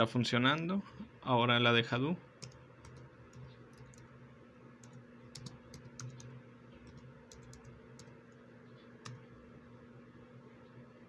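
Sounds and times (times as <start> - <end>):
low steady hum: 0.0 - 11.0
faint keyboard typing: 2.4 - 9.5.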